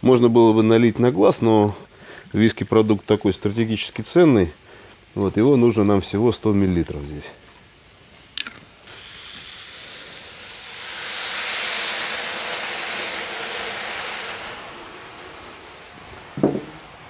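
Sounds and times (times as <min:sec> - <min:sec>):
liquid sizzling in hot pot: 0:06.4 - 0:17.0.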